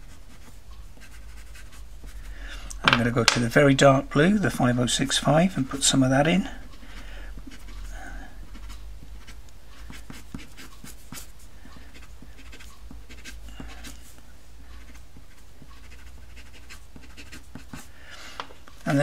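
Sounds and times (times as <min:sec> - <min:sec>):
pastel stick scratching on paper: 0:00.0 - 0:02.2, 0:08.5 - 0:17.9
low steady hum: 0:00.0 - 0:19.0.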